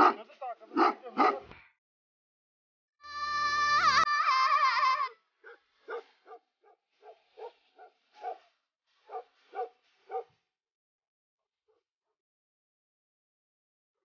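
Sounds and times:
dog barking: 0.0 - 1.6, 5.4 - 10.4
wavering cry: 3.0 - 6.1.

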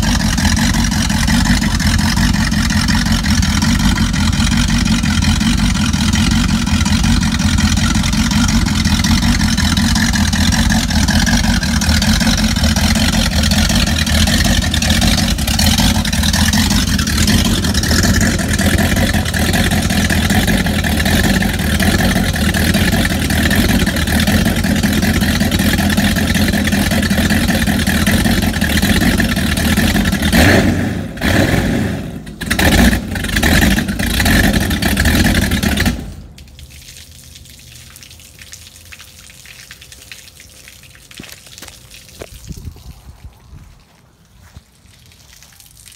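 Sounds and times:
water splashing: 0.0 - 30.4, 32.4 - 45.9
speedboat engine running: 0.0 - 31.4, 32.4 - 36.3.

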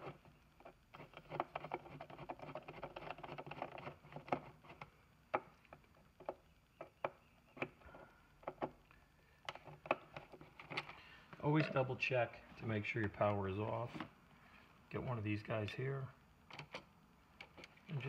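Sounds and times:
screwdriver clicking and scraping metal: 0.0 - 4.9.

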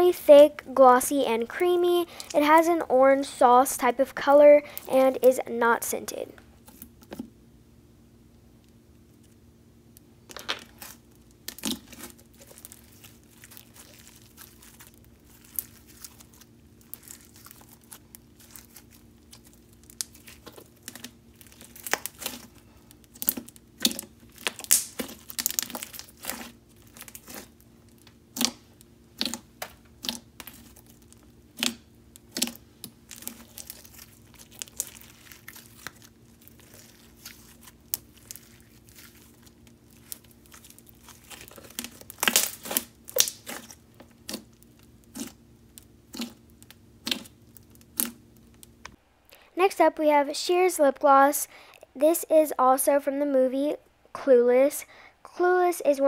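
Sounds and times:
sticky slime pops and clicks: 23.2 - 25.8.

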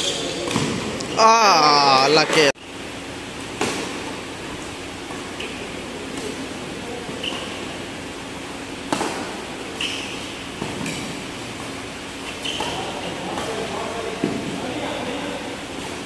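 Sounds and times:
shoe squeaks: 0.0 - 1.2, 7.1 - 7.8, 9.7 - 11.0, 12.1 - 13.3
steady background noise: 0.0 - 16.0
racket striking shuttlecock: 3.4 - 4.4, 8.8 - 14.4.

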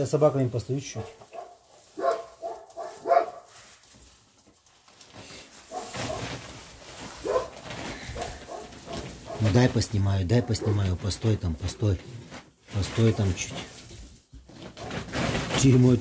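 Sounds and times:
rustling in straw: 0.1 - 16.0.

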